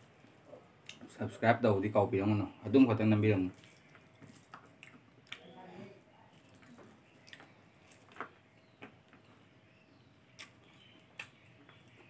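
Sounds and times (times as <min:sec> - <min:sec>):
wet chewing sounds: 0:03.4 - 0:05.6, 0:06.2 - 0:09.4, 0:10.3 - 0:12.0.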